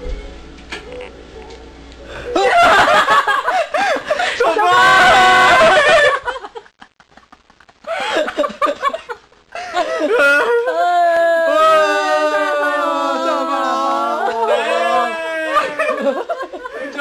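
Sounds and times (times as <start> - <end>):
people laughing and shrieking: 2.2 - 6.5, 9.6 - 17.0
voices crying out together: 4.2 - 6.0, 10.0 - 16.2.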